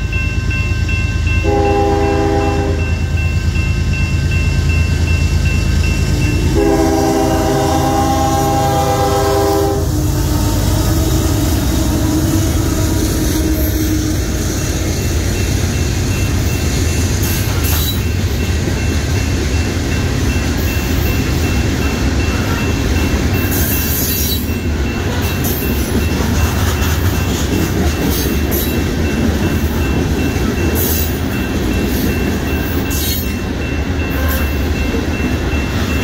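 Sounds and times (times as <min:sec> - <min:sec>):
crossing warning bell ringing: 0:00.0 - 0:36.0
train rumble: 0:00.0 - 0:36.0
locomotive air horn: 0:01.4 - 0:03.0, 0:06.3 - 0:14.5, 0:34.1 - 0:34.6
train wheel clatter: 0:10.1 - 0:36.0.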